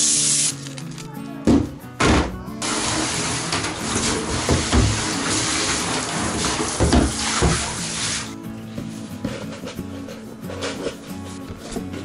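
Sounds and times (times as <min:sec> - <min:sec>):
shower water splashing on plastic: 0:02.6 - 0:08.4.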